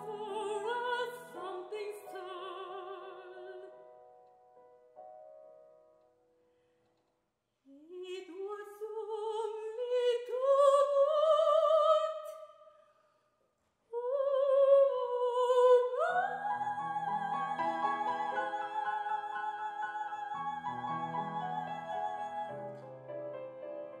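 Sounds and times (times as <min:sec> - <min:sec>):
soprano singing: 0:00.0 - 0:04.0, 0:07.7 - 0:12.8, 0:13.9 - 0:24.0
grand piano: 0:00.0 - 0:06.5, 0:14.4 - 0:24.0.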